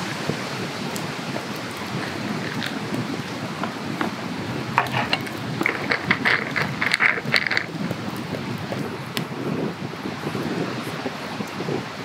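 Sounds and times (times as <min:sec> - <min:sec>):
crackles and pops: 0:00.9 - 0:09.4.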